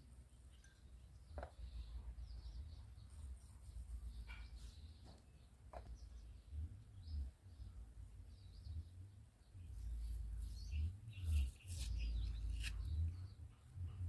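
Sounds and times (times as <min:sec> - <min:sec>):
small birds chirping: 0:00.1 - 0:14.0
knife cutting aloe leaf: 0:11.3 - 0:12.9.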